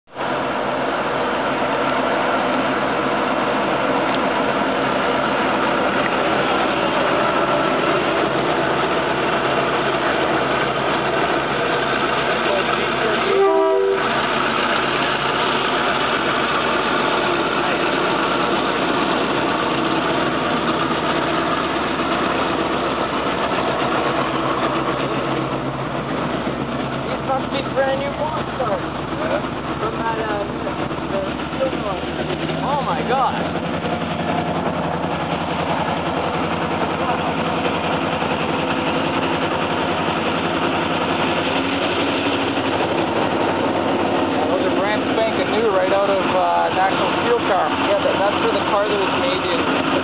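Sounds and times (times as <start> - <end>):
boxcars rolling along rails: 0.1 - 50.0
diesel locomotive engine drone: 0.1 - 50.0.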